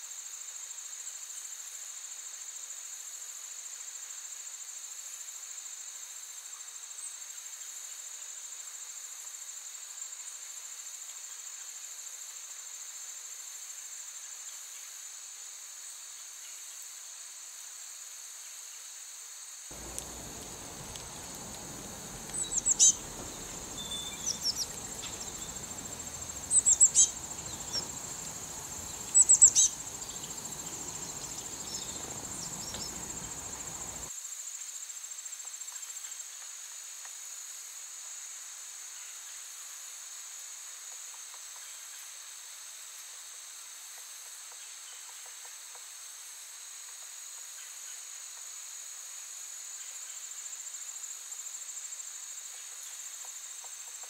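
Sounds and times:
insects chorus: 0:00.2 - 0:54.0
low background hiss: 0:19.6 - 0:34.2
bird chirps: 0:19.7 - 0:34.1.

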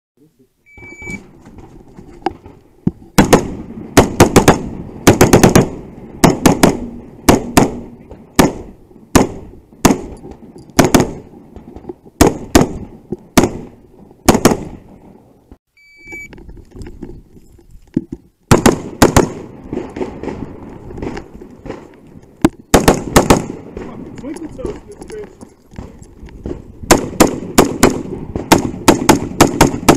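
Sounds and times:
shot timer beep: 0:00.7 - 0:01.2, 0:15.8 - 0:16.3
rifle gunshots: 0:03.2 - 0:11.4, 0:12.2 - 0:14.9, 0:18.5 - 0:21.9, 0:22.7 - 0:24.8, 0:25.8 - 0:29.9.

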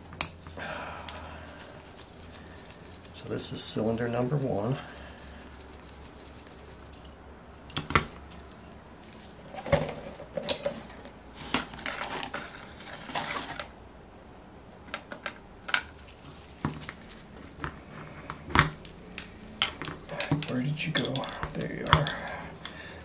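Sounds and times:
scraping and rustling: 0:00.0 - 0:07.2, 0:07.8 - 0:13.8, 0:15.8 - 0:23.0
metal parts and tools knocking: 0:19.6 - 0:22.1.

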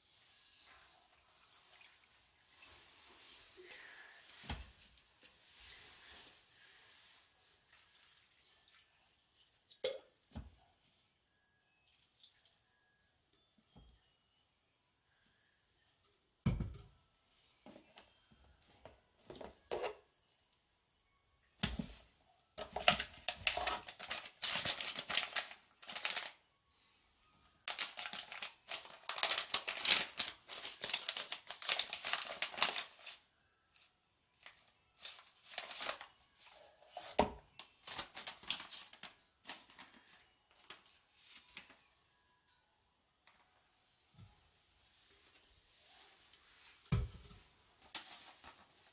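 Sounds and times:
plastic packet crinkling and tearing: 0:22.6 - 0:26.4, 0:27.6 - 0:33.2, 0:34.4 - 0:36.1, 0:37.6 - 0:41.7.

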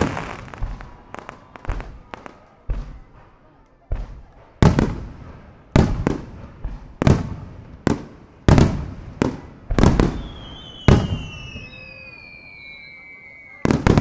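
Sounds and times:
falling whistle: 0:10.2 - 0:14.0.

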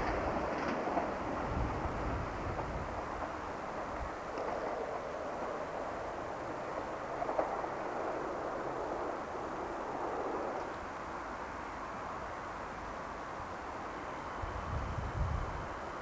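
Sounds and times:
diesel train running away: 0:00.0 - 0:16.0.

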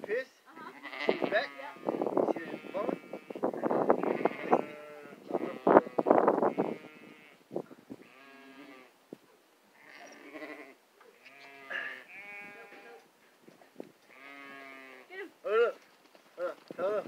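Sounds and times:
sheep bleating: 0:00.6 - 0:07.4, 0:08.0 - 0:08.9, 0:09.8 - 0:13.0, 0:14.1 - 0:15.1.

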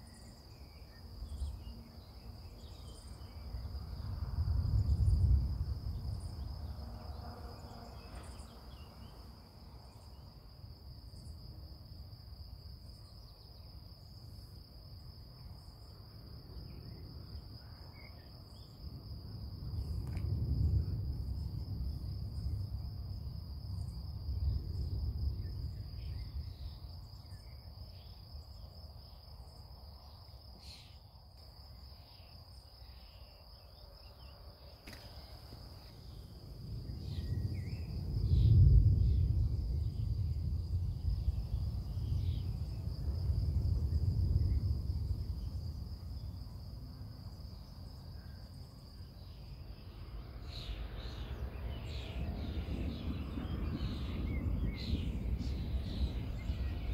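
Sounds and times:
crickets trilling: 0:00.0 - 0:56.9
distant thunder rumbling: 0:03.2 - 0:09.2, 0:18.8 - 0:28.3, 0:36.0 - 0:48.6, 0:49.6 - 0:56.9.

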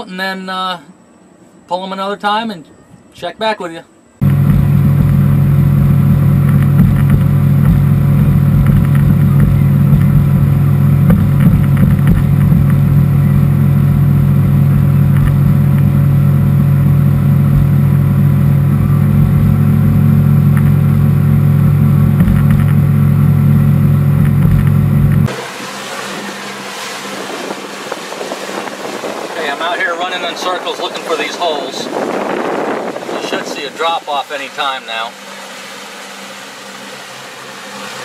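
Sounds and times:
wind on microphone: 0:04.2 - 0:34.2
outboard motor running: 0:04.2 - 0:38.0
water hissing past hull: 0:25.3 - 0:38.0.

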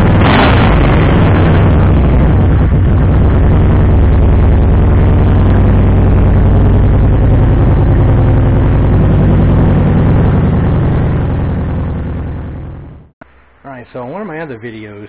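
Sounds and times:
motorcycle engine idling: 0:01.2 - 0:13.1.

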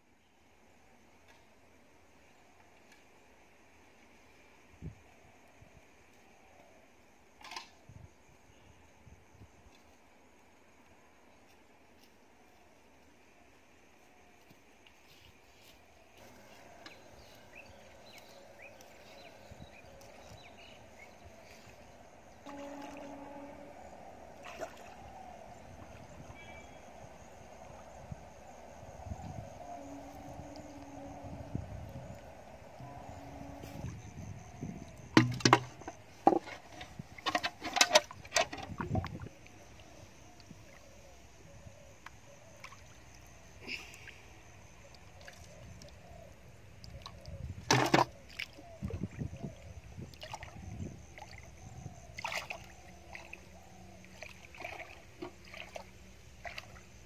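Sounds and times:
knocks and clatters in metal bucket: 0:35.2 - 0:39.1, 0:47.7 - 0:48.1.

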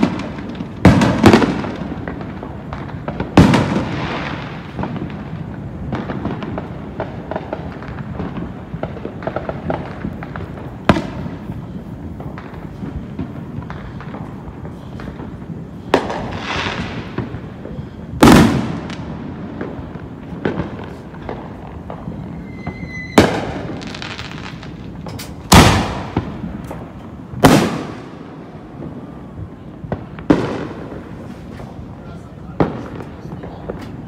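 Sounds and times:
fireworks bangs with crackling tail: 0:00.0 - 0:34.0
firework whistle: 0:20.8 - 0:26.2.

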